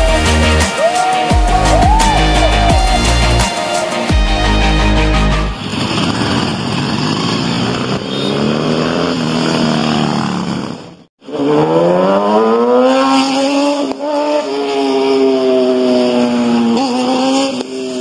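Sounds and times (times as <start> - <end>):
motorcycle accelerating hard: 5.4 - 18.0
motorcycle riding by: 5.5 - 18.0.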